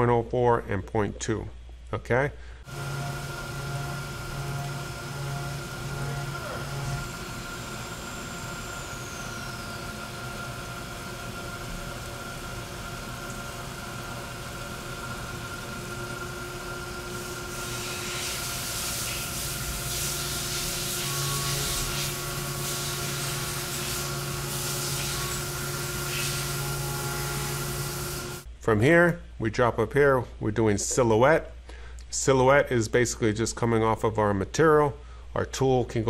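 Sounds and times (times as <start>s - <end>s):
milling machine whine: 2.7s - 28.5s
coolant spray hissing: 17.0s - 26.6s.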